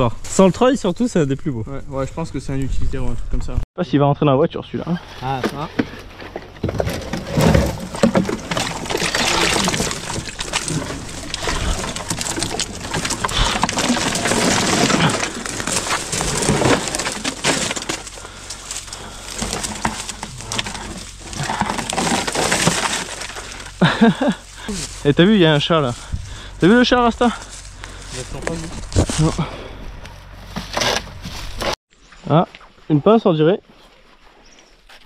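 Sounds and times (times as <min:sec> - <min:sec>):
metal car body dragged through brush: 0:05.0 - 0:31.8
twigs and grass crackling: 0:05.0 - 0:32.8.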